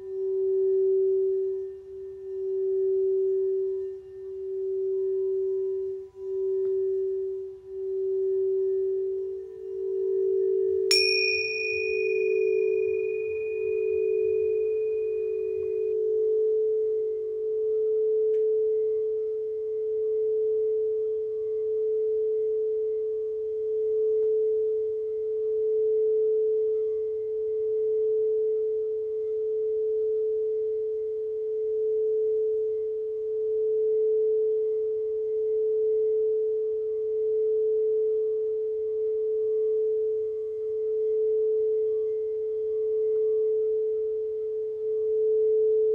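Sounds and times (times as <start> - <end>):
singing bowl ringing: 0.0 - 18.8
lower singing bowl tone: 0.0 - 45.9.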